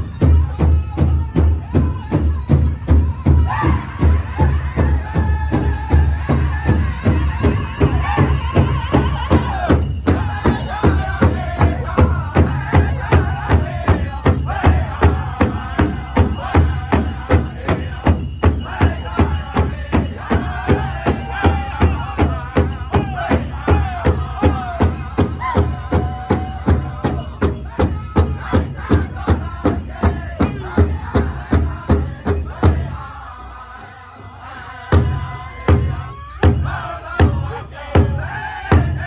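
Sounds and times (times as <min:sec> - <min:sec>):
large drum beating: 0:00.0 - 0:33.0, 0:34.9 - 0:39.0
group singing in unison: 0:03.2 - 0:39.0.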